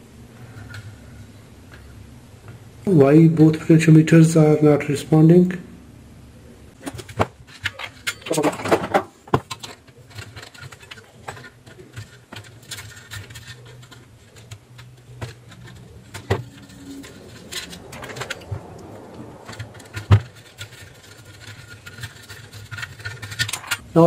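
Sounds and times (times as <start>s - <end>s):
low steady hum: 0.0s - 24.0s
wires and connectors clicking: 9.4s - 23.8s.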